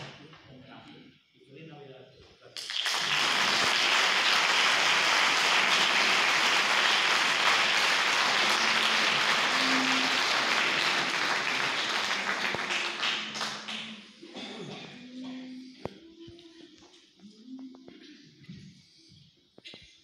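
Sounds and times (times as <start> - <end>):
audience applauding: 2.6 - 14.1.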